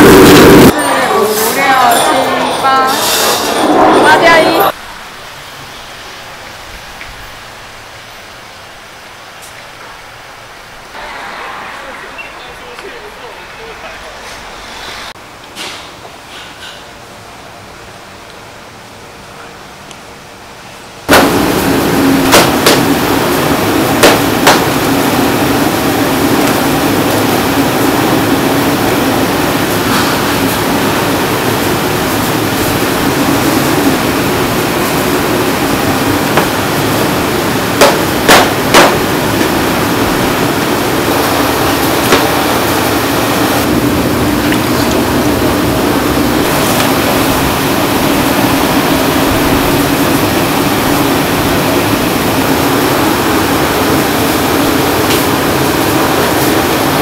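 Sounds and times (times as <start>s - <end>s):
loud steady rush with low hum: 0.0s - 1.9s, 3.5s - 16.3s, 17.0s - 57.0s
sharp metallic knocks: 37.8s - 39.1s.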